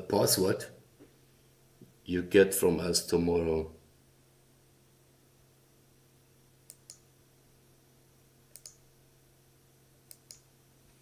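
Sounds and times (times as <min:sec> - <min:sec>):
faint electrical hum: 0:00.0 - 0:11.0.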